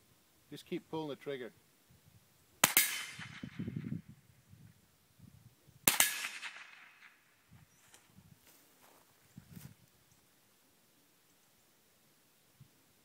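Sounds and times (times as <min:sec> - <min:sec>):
rifle shots: 0:02.6 - 0:03.8, 0:05.8 - 0:07.2.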